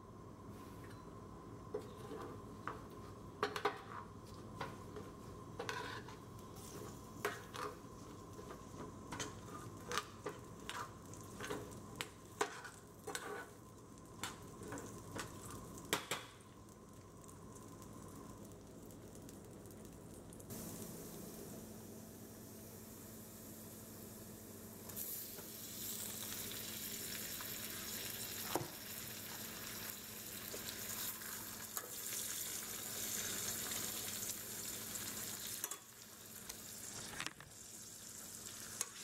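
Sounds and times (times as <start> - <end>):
oil sizzling: 4.8 - 39.0
metal spoon scraping skillet: 5.6 - 7.8, 12.4 - 13.5.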